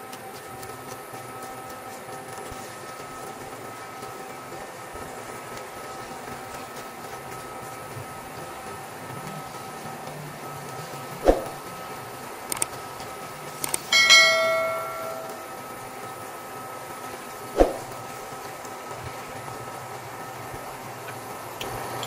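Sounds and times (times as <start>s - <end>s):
faint steady whine: 0.0s - 22.0s
clicks: 12.5s - 12.8s
bell-like chime: 13.9s - 15.7s.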